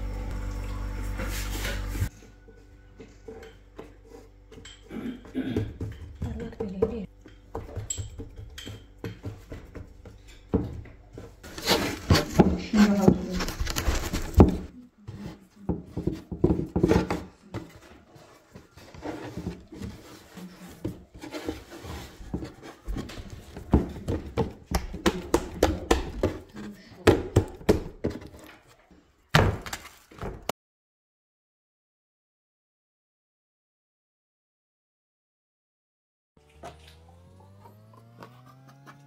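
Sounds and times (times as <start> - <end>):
hands rolling dough on wooden board: 3.0 - 28.8
scraping and rustling: 9.2 - 24.5.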